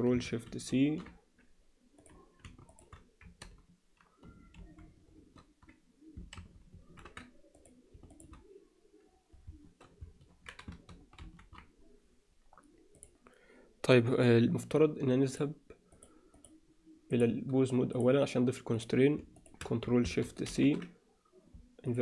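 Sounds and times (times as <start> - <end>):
computer keyboard keystrokes: 2.0 - 8.4, 9.4 - 11.7.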